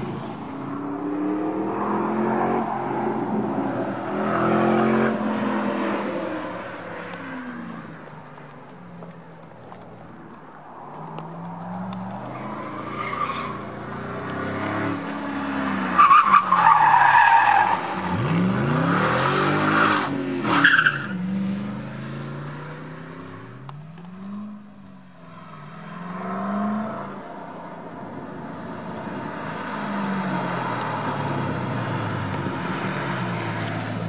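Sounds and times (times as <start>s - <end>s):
car engine revving hard: 18.1s - 23.1s.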